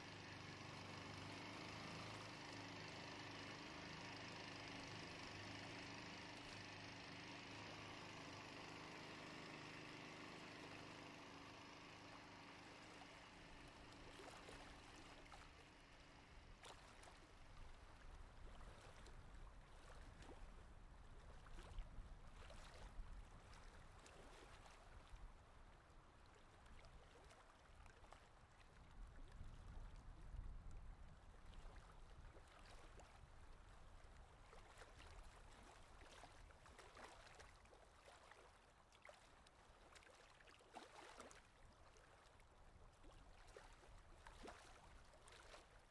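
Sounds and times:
water lapping around a boat: 0.0s - 45.9s.

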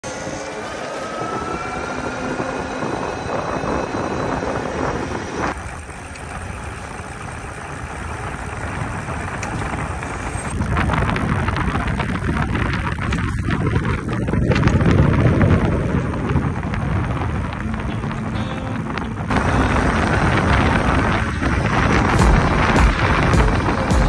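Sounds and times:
electric motor whine: 0.0s - 24.0s
tyres rolling on asphalt: 0.0s - 24.0s
wind rumble on microphone: 0.1s - 24.0s.

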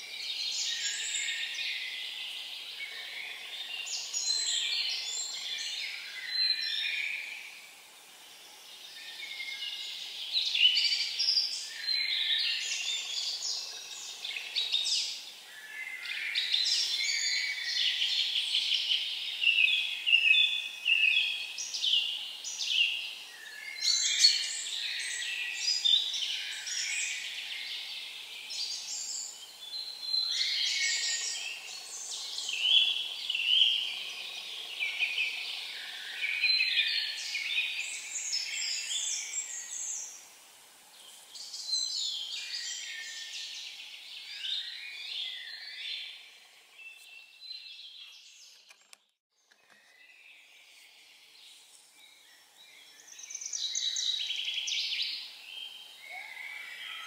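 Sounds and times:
songbirds singing: 0.0s - 57.0s.

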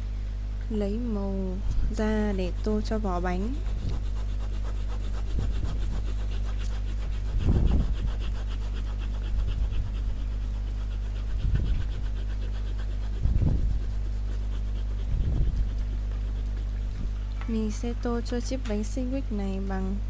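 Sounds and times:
steady electrical hum: 0.0s - 20.0s
pen scratching on paper: 1.9s - 16.8s.

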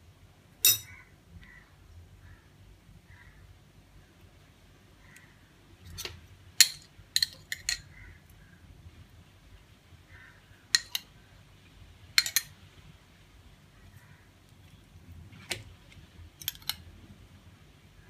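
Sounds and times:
metal spoon clinking against plate: 0.6s - 1.0s, 5.8s - 7.9s, 10.7s - 11.1s, 12.2s - 12.5s, 16.4s - 16.8s.

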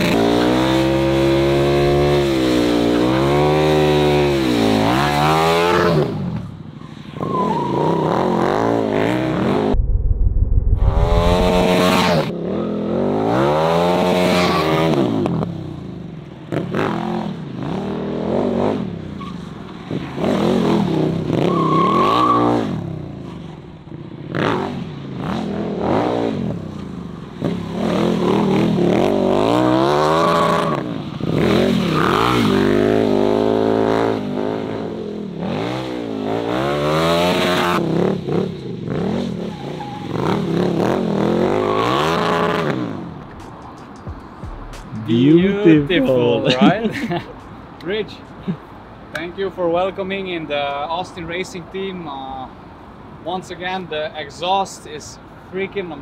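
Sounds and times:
motorcycle engine revving hard: 10.9s - 15.3s.

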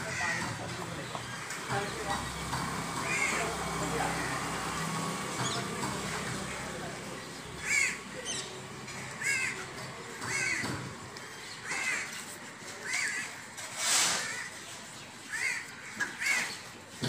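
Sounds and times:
crows cawing: 0.0s - 1.7s, 3.0s - 4.8s, 7.6s - 13.5s, 14.1s - 16.6s.

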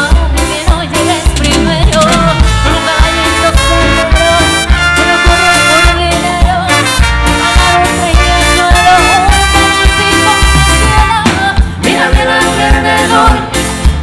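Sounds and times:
bass and percussion beat: 0.0s - 14.0s
brass section long notes: 2.2s - 11.3s.

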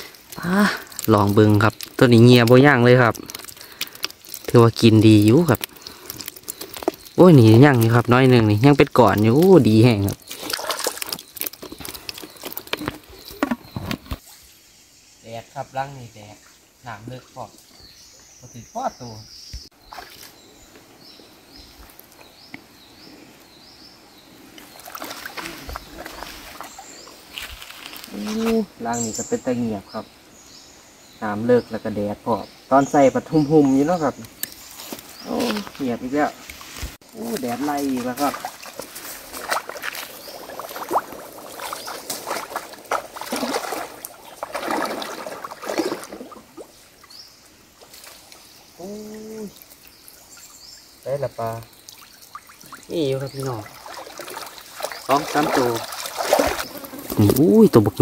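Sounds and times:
stream flowing: 0.0s - 14.5s, 19.8s - 30.8s, 31.7s - 58.0s
water splashing: 0.0s - 14.5s, 24.4s - 28.6s, 34.4s - 58.0s.

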